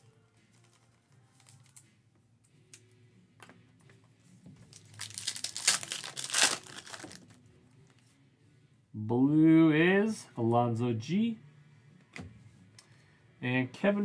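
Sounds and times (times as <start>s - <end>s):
foil wrapper crinkling: 4.6s - 7.4s.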